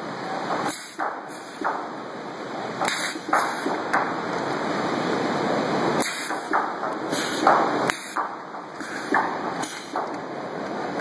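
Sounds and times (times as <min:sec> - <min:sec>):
sharp welding cracks: 0:02.8 - 0:04.1, 0:06.0 - 0:08.4.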